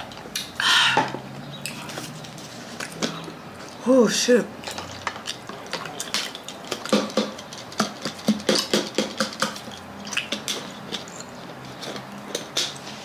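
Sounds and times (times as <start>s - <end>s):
water sloshing: 4.4s - 11.7s.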